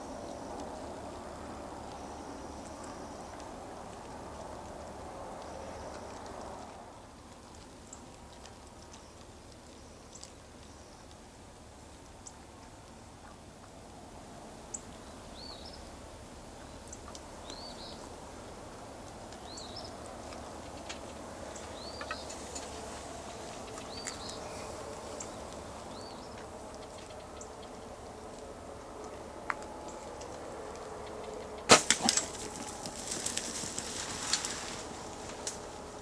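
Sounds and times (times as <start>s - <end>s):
outdoor background hiss: 0.0s - 36.0s.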